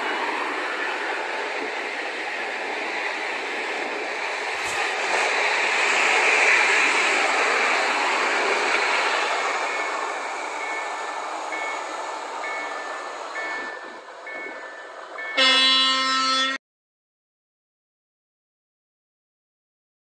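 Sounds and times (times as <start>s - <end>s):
train carriages rumbling on rails: 0.0s - 16.6s
electric train horn: 15.3s - 16.6s.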